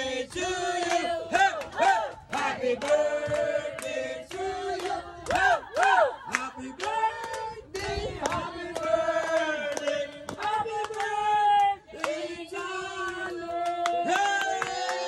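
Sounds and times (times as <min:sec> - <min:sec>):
group of voices singing: 0:00.0 - 0:15.0
hand clapping: 0:00.3 - 0:07.5, 0:08.2 - 0:12.2, 0:13.0 - 0:15.0.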